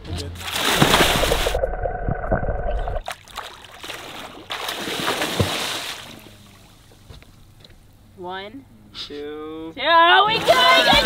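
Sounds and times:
water splashing and sloshing: 0.3 - 7.2, 10.3 - 11.0
muffled underwater rumble: 1.0 - 3.0.

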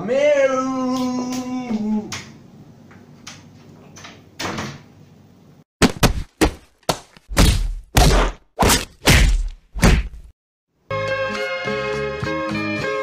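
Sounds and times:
loud thuds and whacks: 5.8 - 10.3.

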